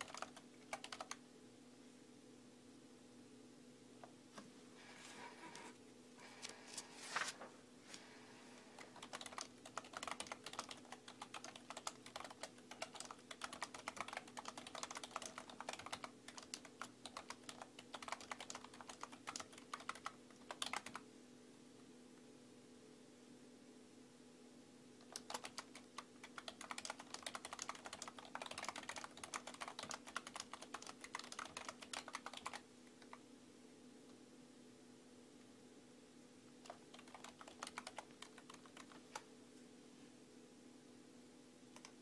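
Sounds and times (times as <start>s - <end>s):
keyboard typing: 0.0s - 1.2s, 8.7s - 21.1s, 25.0s - 33.2s, 36.6s - 39.3s, 41.7s - 42.0s
faint steady hum: 0.0s - 42.0s.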